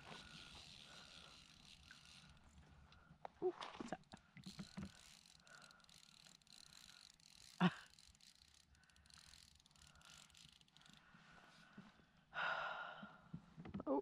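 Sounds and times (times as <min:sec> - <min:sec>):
fishing reel and line handling: 0:00.0 - 0:11.2.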